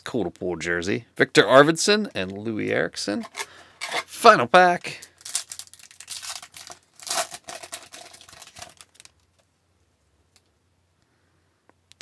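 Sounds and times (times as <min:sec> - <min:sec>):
foil wrapper tearing and crinkling: 0:05.0 - 0:09.4.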